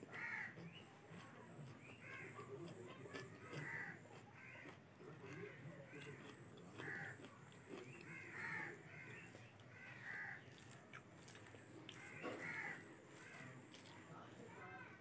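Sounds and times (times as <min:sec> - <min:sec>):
crows cawing: 0:00.0 - 0:00.7, 0:02.0 - 0:02.5, 0:03.5 - 0:07.3, 0:08.0 - 0:10.6, 0:11.9 - 0:13.9.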